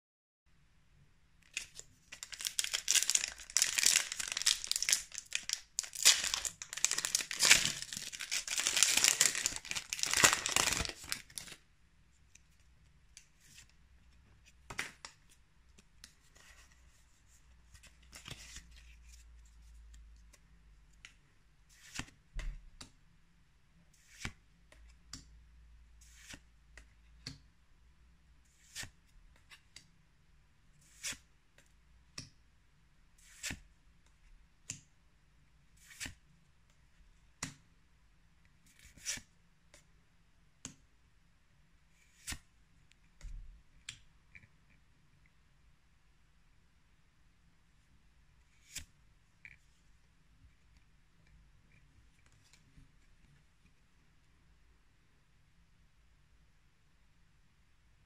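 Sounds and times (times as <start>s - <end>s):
cards sliding and flipping: 1.5s - 11.6s, 16.0s - 17.0s, 17.7s - 19.8s, 21.0s - 22.2s, 23.9s - 24.8s, 26.0s - 26.5s, 28.5s - 29.5s, 30.8s - 31.3s, 33.2s - 33.6s, 35.7s - 36.2s, 38.6s - 39.8s, 41.9s - 42.5s, 48.5s - 49.0s
foil wrapper crinkling: 1.6s - 11.6s.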